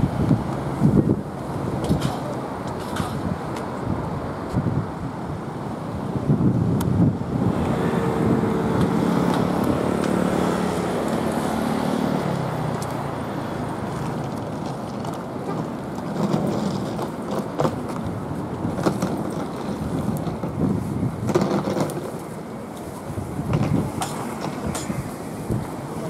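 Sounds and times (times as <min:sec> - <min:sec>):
street noise: 0:00.0 - 0:26.0
car passing by: 0:07.3 - 0:14.9.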